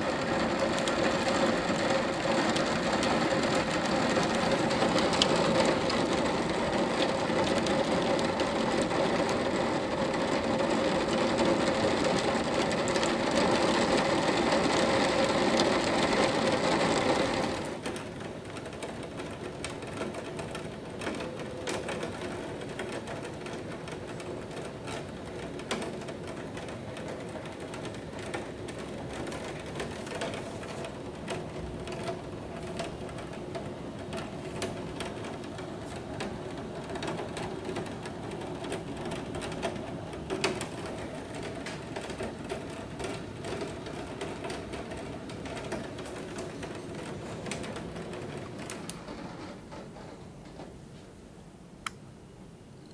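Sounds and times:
heavy rain pouring: 0:00.0 - 0:17.8
raindrops patter: 0:00.0 - 0:49.1.

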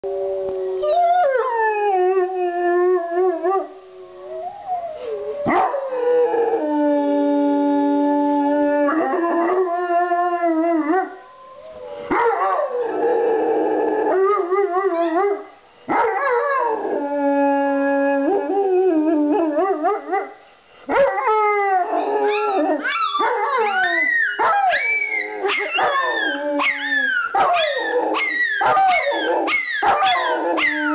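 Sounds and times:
dogs howling: 0:20.9 - 0:30.9
recorded wolf howls: 0:20.9 - 0:30.9.

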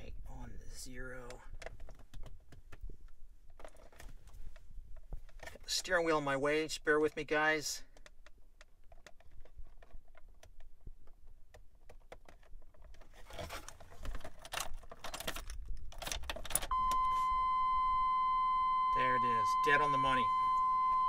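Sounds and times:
rustling: 0:12.2 - 0:17.4
steady electronic beep tone: 0:16.7 - 0:21.0.

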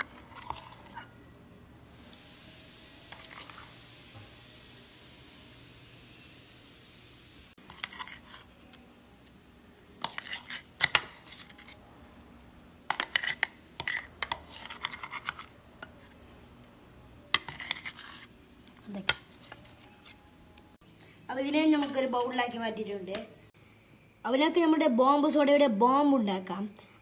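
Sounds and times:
spoon scraping metal jar: 0:00.0 - 0:01.2, 0:07.6 - 0:08.8, 0:10.0 - 0:11.8, 0:12.9 - 0:16.1, 0:17.3 - 0:18.3, 0:19.0 - 0:20.2
steady hiss: 0:01.9 - 0:07.6.

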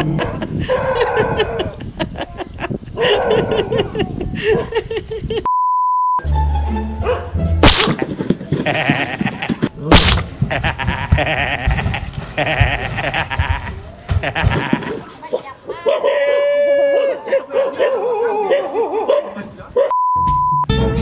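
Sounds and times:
short beep: 0:05.5 - 0:06.2, 0:19.9 - 0:20.7
music: 0:06.2 - 0:07.6, 0:20.2 - 0:21.0
sharp whacks: 0:07.6 - 0:08.6, 0:09.9 - 0:10.4.

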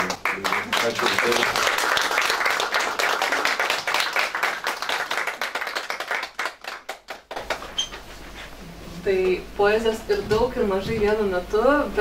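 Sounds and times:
audience applause: 0:00.0 - 0:07.7.

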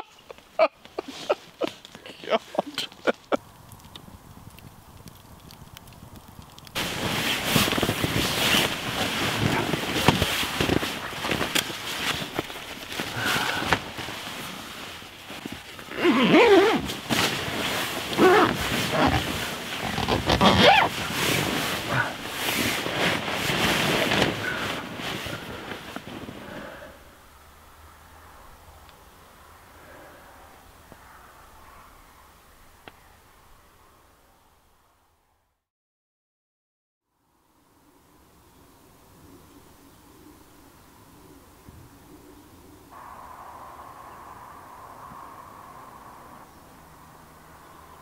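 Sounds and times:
sleeping bag rustling: 0:00.9 - 0:03.4, 0:06.8 - 0:27.0.

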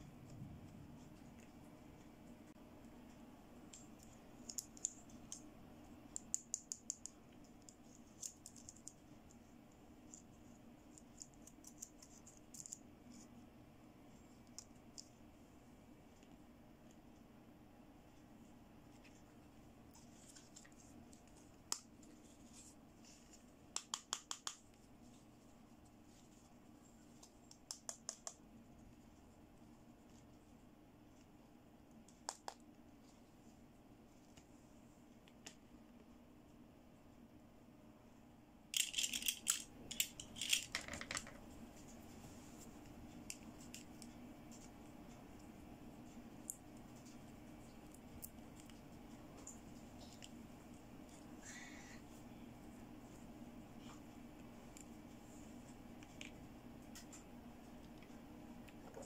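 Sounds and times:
faint steady hum: 0:00.0 - 0:59.0
plastic toy pieces clicking: 0:38.8 - 0:41.4.

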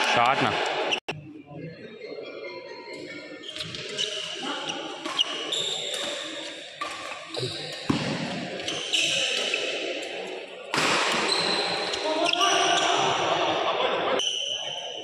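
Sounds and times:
sneakers squeaking on court: 0:03.4 - 0:09.8, 0:11.1 - 0:13.0
rackets striking shuttlecock: 0:05.0 - 0:09.6.

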